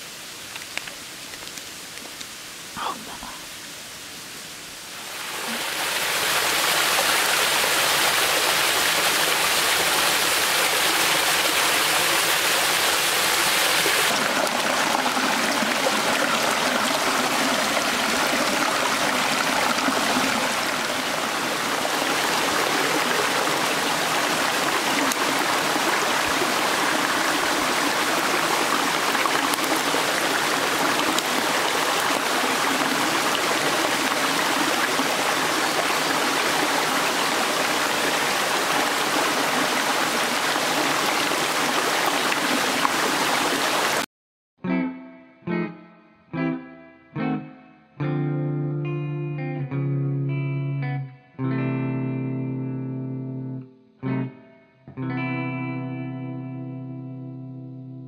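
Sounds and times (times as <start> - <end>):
stream rushing over rocks: 0.0 - 44.1.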